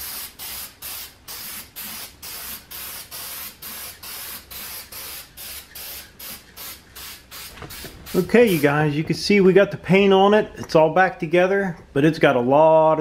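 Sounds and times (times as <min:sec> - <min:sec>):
spray paint can hissing: 0:00.0 - 0:08.8.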